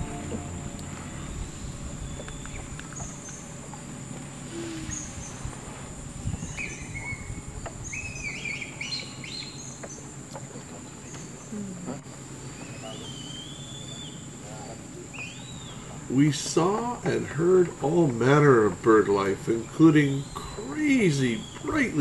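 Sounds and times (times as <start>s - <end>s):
birds calling: 0.0s - 4.0s, 6.2s - 11.6s, 12.2s - 22.0s
faint low rumble: 0.0s - 8.0s
high insect drone: 0.0s - 22.0s.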